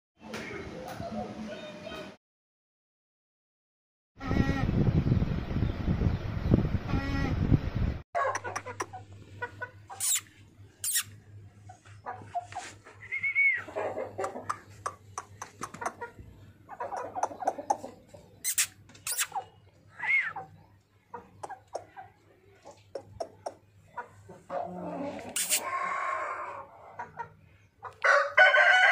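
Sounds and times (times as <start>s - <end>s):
chickens clucking: 8.2s - 28.8s
high-pitched calls: 9.9s - 11.2s, 18.4s - 20.5s, 25.4s - 25.8s.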